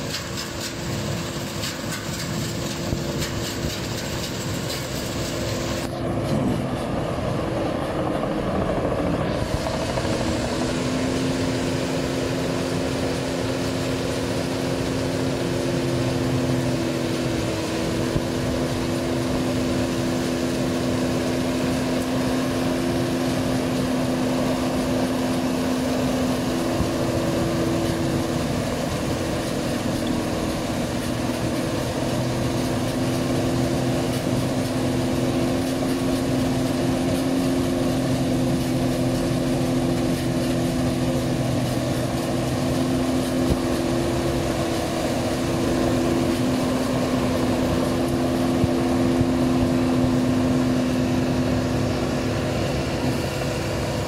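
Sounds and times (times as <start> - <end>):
combine harvester humming: 0.0 - 54.0.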